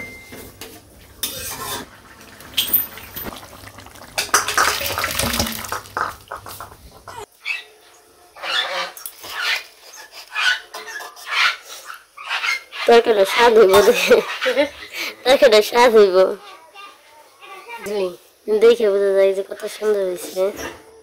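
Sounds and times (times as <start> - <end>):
metal spatula scraping wok: 1.2 - 2.0, 8.4 - 15.1
thick curry pouring into bowl: 2.0 - 6.4.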